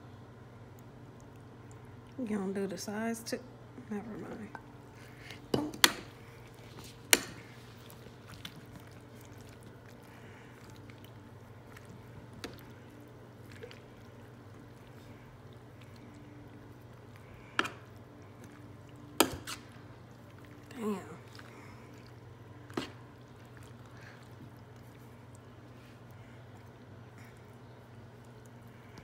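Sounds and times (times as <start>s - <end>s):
steady low hum: 0.0s - 29.0s
wet squishing: 4.9s - 29.0s.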